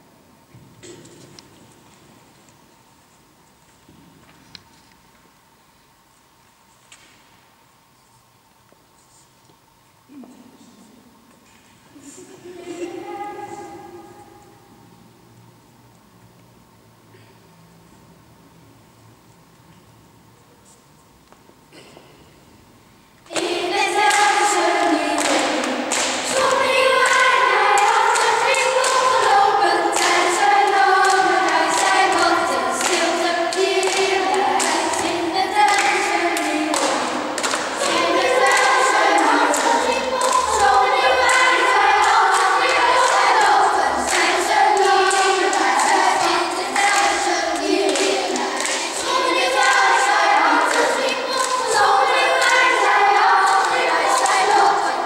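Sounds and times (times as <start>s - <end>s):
children's choir singing: 12.1s - 15.2s, 23.2s - 55.0s
hands clapping: 23.3s - 55.0s.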